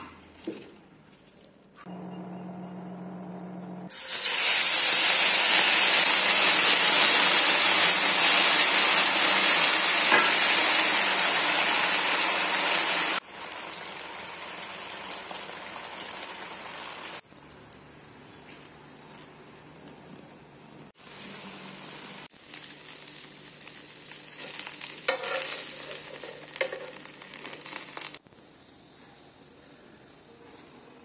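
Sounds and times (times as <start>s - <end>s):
batter sizzling on hot pan: 3.9s - 17.2s, 21.0s - 28.2s.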